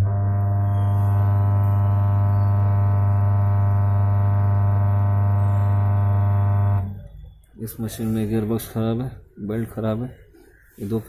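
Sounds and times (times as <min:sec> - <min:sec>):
washing machine motor humming: 0:00.0 - 0:07.1.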